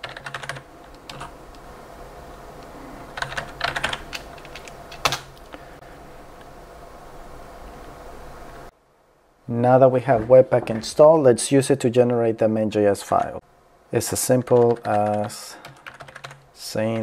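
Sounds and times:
typing on computer keyboard: 0:00.0 - 0:01.3, 0:03.2 - 0:05.3, 0:14.1 - 0:16.4
faint steady hum: 0:00.0 - 0:17.0.

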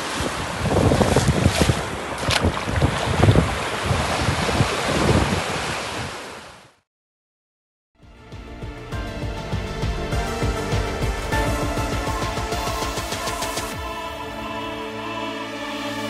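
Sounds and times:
wind buffeting microphone: 0:00.0 - 0:06.2
small waves washing in: 0:00.0 - 0:06.8
music: 0:08.0 - 0:16.0.

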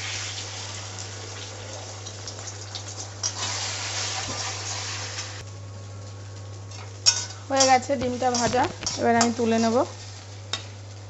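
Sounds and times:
egg sizzling in hot oil: 0:00.0 - 0:11.0
steady low hum: 0:05.4 - 0:11.0
metal spatula clicks and scrapes: 0:06.7 - 0:09.4.

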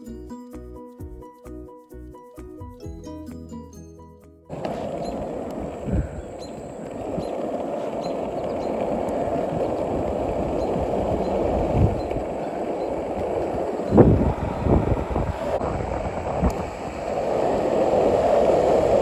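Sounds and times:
skateboard wheels rolling on asphalt: 0:04.5 - 0:19.0.

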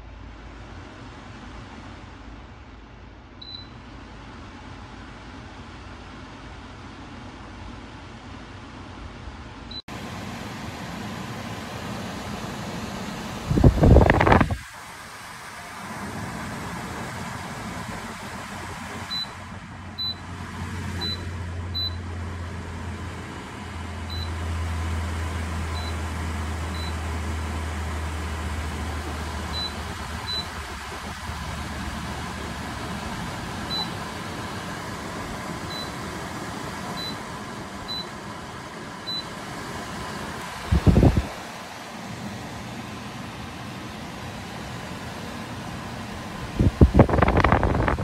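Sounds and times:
air cooler fan rushing: 0:00.0 - 0:48.0
short high control panel beeps: 0:21.0 - 0:22.0.

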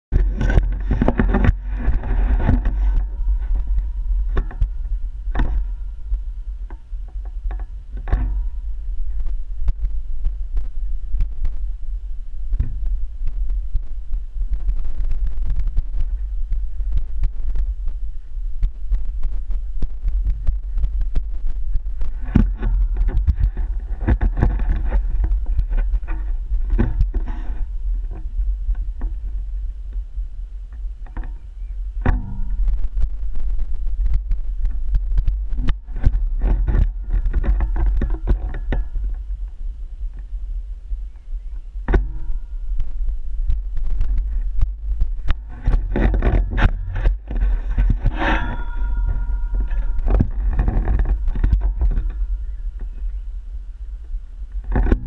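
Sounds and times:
wind buffeting microphone: 0:00.1 - 0:55.0
camera pole knocks and rattles: 0:00.2 - 0:05.8.

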